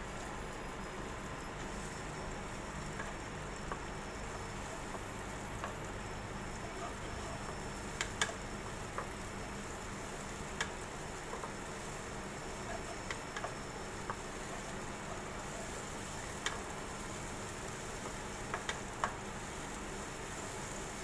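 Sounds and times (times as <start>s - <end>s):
paste sizzling in oil: 1.4s - 21.0s
spatula stirring in wok: 6.4s - 21.0s.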